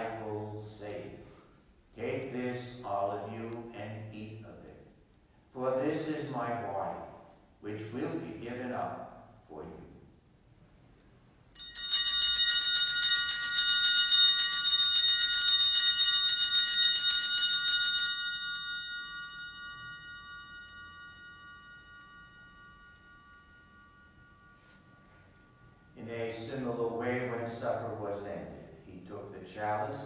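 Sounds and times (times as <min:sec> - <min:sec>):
altar bells ringing: 0:11.6 - 0:27.5.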